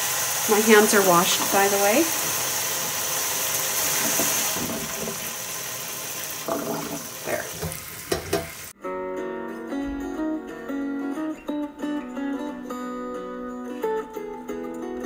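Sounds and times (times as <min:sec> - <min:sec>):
tap water splashing into a colander: 0:03.8 - 0:08.7
acoustic guitar music: 0:08.7 - 0:15.0.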